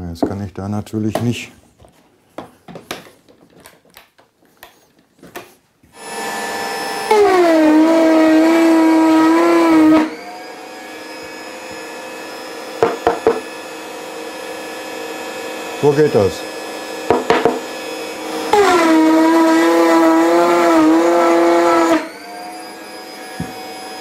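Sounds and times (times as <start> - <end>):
router cutting wood: 5.9 - 24.0
wood knocks: 12.8 - 13.5, 17.1 - 17.6.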